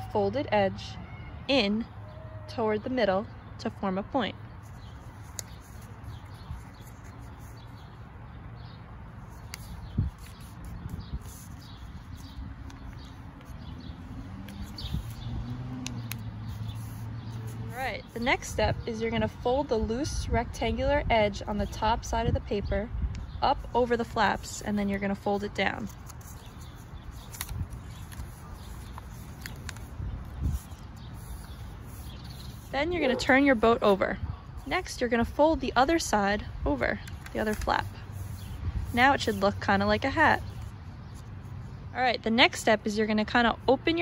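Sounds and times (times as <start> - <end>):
small birds chirping: 1.8 - 44.0
paper being folded: 4.6 - 8.0, 9.2 - 18.4, 23.6 - 33.2, 37.0 - 39.6.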